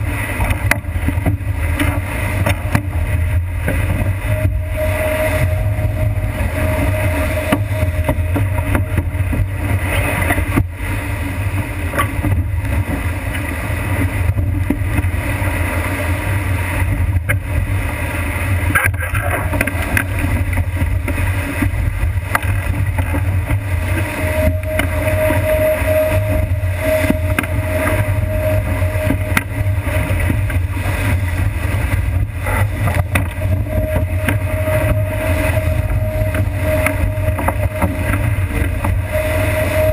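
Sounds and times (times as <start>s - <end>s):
heavy low rumble: 0.0s - 39.9s
water rushing past hull: 0.0s - 39.9s
wind buffeting camera: 0.0s - 39.9s
thin whistle: 4.2s - 8.8s, 24.1s - 29.8s.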